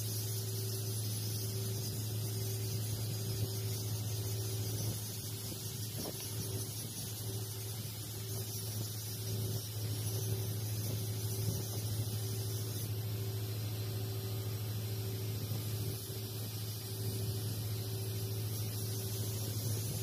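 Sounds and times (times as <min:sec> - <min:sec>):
welding arc hissing: 0:00.0 - 0:20.0.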